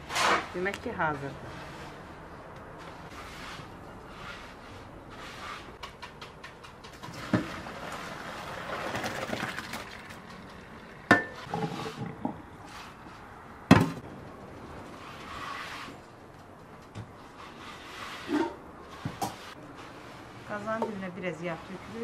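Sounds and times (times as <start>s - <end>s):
water splashing into colander: 7.0s - 10.3s.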